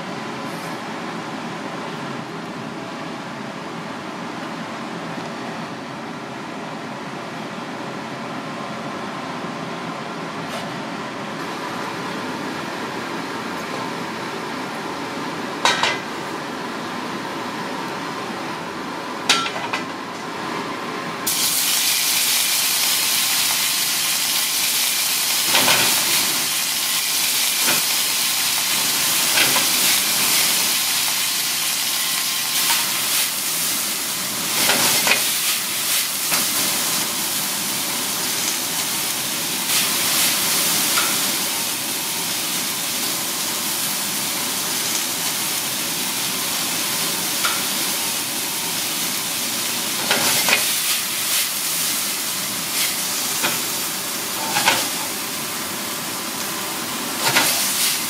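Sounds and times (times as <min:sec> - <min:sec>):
food sizzling: 0:21.2 - 0:58.0.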